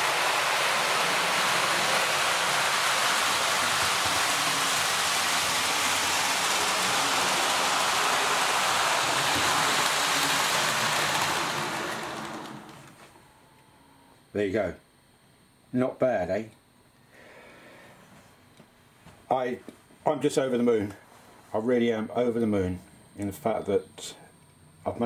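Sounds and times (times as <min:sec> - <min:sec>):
model locomotive motor: 0:00.0 - 0:13.1
model train wheels rolling on rails: 0:00.0 - 0:13.1.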